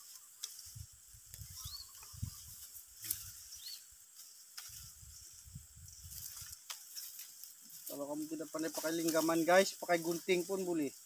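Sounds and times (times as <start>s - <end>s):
rice stalks rustling and snapping: 0.0s - 11.0s
steady hiss: 0.0s - 11.0s
bird chirping: 1.4s - 4.4s.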